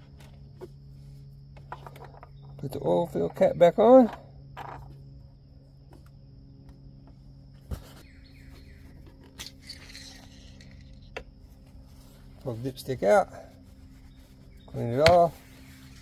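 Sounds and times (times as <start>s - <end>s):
insects: 0.0s - 16.0s
birds chirping: 7.7s - 16.0s.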